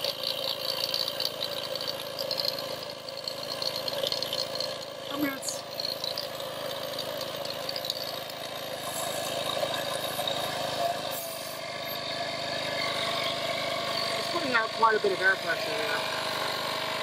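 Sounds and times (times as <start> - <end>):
air compressor running: 0.0 - 17.0.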